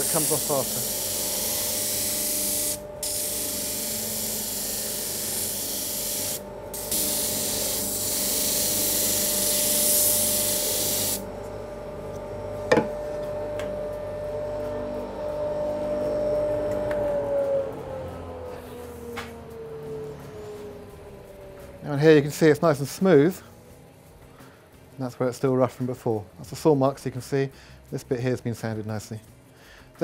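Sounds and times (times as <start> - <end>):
disc sander grinding wood: 0.0 - 11.2
machine humming: 0.0 - 24.9.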